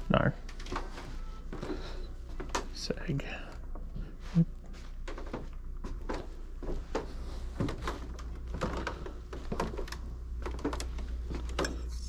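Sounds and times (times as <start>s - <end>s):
steady low hum: 0.2s - 12.0s
footsteps on hardwood floor: 0.7s - 2.8s, 4.7s - 11.6s.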